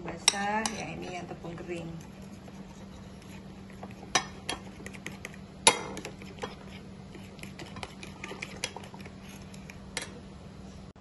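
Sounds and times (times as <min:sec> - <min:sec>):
cutlery clinking against bowls: 0:00.2 - 0:01.1.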